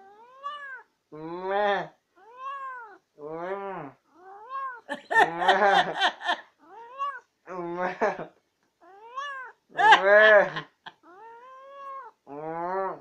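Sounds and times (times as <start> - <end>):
cat meowing: 0.0 - 0.9, 2.2 - 3.0, 4.2 - 4.9, 6.6 - 7.3, 8.8 - 9.6, 11.0 - 12.2.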